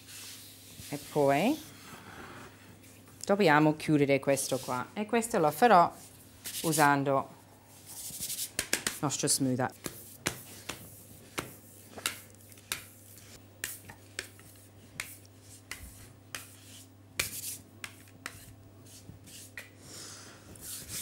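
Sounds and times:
smoother scuffing on cake: 0:09.7 - 0:19.8.

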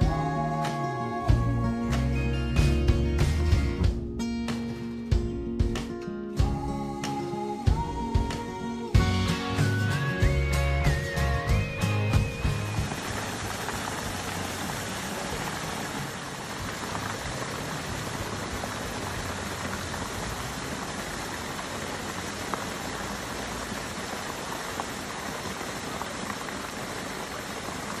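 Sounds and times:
shallow river water rushing: 0:12.3 - 0:28.0.

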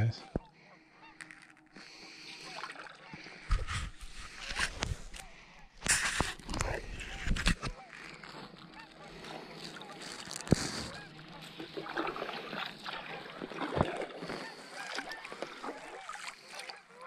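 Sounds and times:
kayak paddle splashing: 0:01.8 - 0:04.7, 0:07.8 - 0:17.0
water dripping off paddle: 0:11.5 - 0:16.7.

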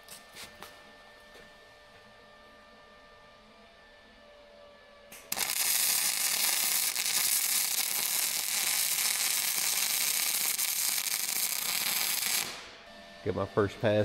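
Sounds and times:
welding arc crackling sizzle: 0:05.1 - 0:12.8.

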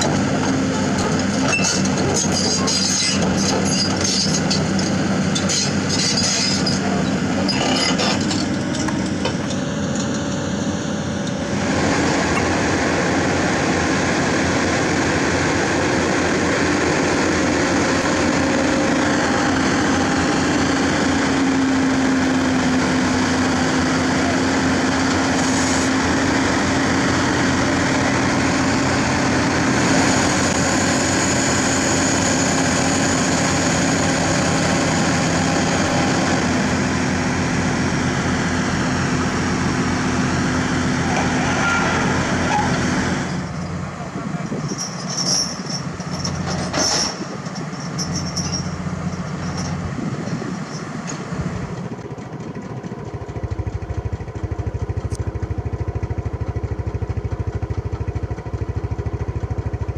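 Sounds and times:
metallic clatter of steel tracks: 0:00.0 - 0:10.3, 0:40.9 - 0:51.5
hydraulics whining: 0:00.0 - 0:52.5
diesel engines running: 0:00.0 - 0:59.9.

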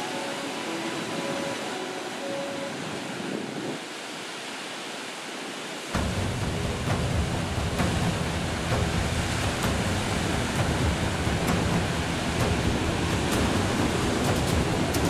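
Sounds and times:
surf hissing over rocks: 0:00.0 - 0:15.0
deep wave rumble: 0:05.9 - 0:15.0.

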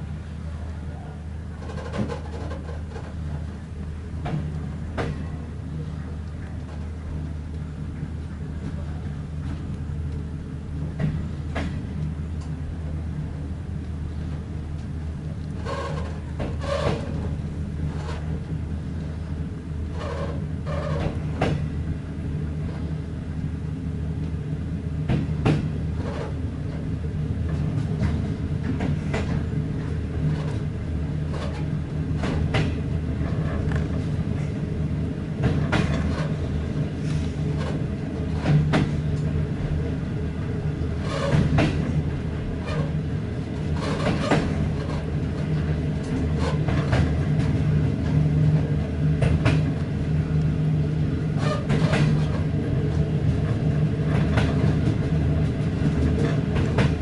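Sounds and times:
train running gear rumble: 0:00.0 - 0:57.0
wheels clacking over rail joints: 0:01.6 - 0:03.5, 0:15.5 - 0:18.4, 0:19.9 - 0:21.7, 0:35.4 - 0:39.8, 0:40.8 - 0:43.0, 0:43.6 - 0:49.9, 0:51.4 - 0:57.0.

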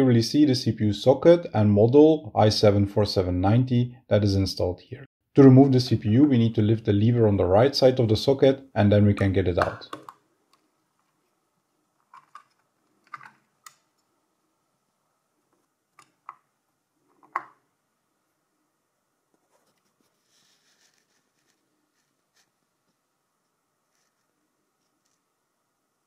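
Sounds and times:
faint rustle of handling: 0:19.3 - 0:25.5.

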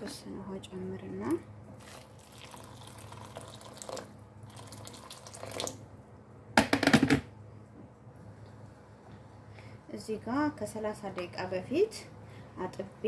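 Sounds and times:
water pouring into a pot: 0:01.8 - 0:05.8.

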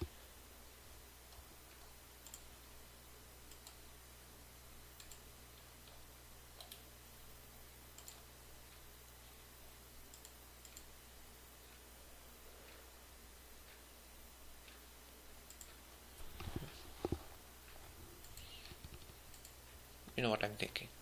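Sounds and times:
low electrical hum and hiss: 0:00.0 - 0:21.0
computer mouse clicks: 0:01.3 - 0:02.5, 0:03.5 - 0:03.9, 0:05.0 - 0:06.0, 0:06.6 - 0:06.9, 0:08.0 - 0:08.3, 0:10.1 - 0:10.9, 0:15.4 - 0:17.2, 0:18.2 - 0:19.6.

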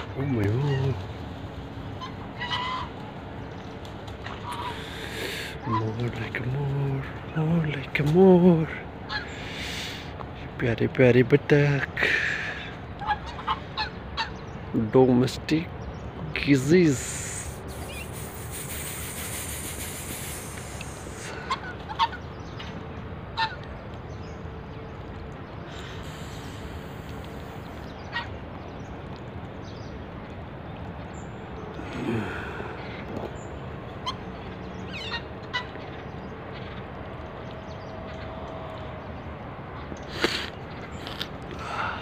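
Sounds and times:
steady background hiss: 0:00.0 - 0:29.9
geese honking: 0:01.9 - 0:03.6, 0:04.2 - 0:06.0, 0:09.0 - 0:10.0, 0:12.6 - 0:14.5, 0:16.9 - 0:23.9, 0:25.7 - 0:28.4, 0:33.9 - 0:36.8.

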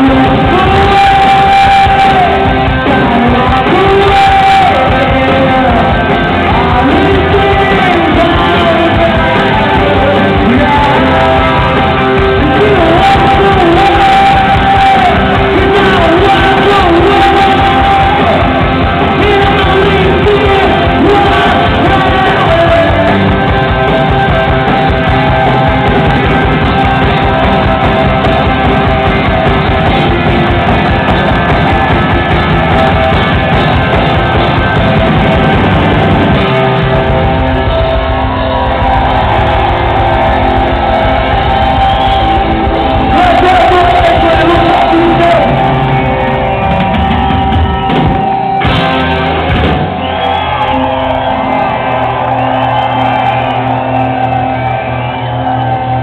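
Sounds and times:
person singing: 0:00.0 - 0:23.9, 0:42.9 - 0:46.3
rock band playing live: 0:00.0 - 0:56.0.

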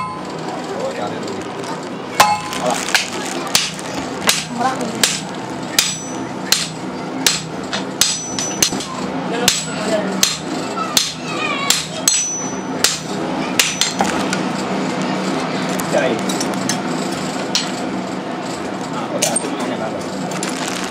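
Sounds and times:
hammer striking anvil: 0:00.0 - 0:00.3, 0:02.2 - 0:14.2.

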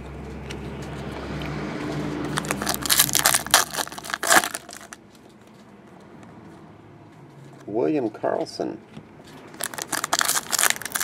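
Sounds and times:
foil wrapper crinkling: 0:02.3 - 0:05.0, 0:09.5 - 0:11.0.

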